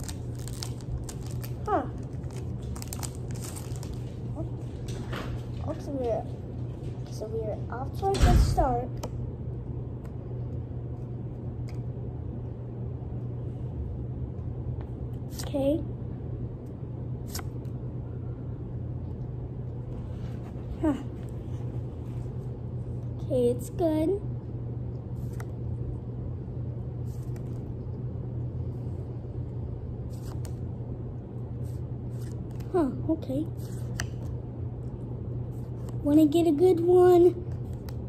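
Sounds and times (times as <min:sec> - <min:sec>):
paper trading cards being handled: 0:00.0 - 0:06.0, 0:17.2 - 0:17.8, 0:25.1 - 0:25.6, 0:27.0 - 0:27.9, 0:30.0 - 0:30.7, 0:31.6 - 0:32.8, 0:33.5 - 0:36.1, 0:37.4 - 0:38.0
low background rumble: 0:00.0 - 0:38.0
steady low hum: 0:00.0 - 0:38.0.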